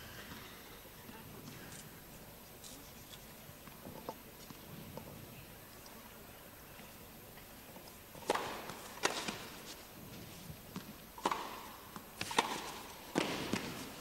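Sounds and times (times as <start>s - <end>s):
tennis ball hit by rackets: 8.2s - 9.7s, 10.7s - 14.0s.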